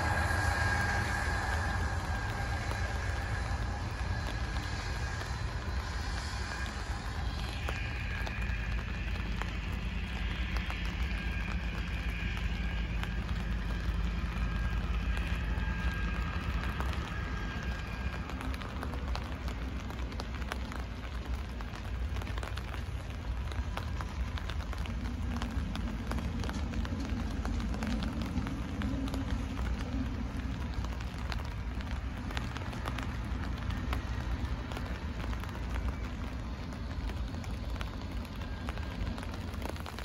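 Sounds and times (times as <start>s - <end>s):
faint high whine: 0.0s - 40.0s
light rain pattering: 0.0s - 40.0s
low hum: 0.0s - 40.0s
low rumble: 0.0s - 40.0s.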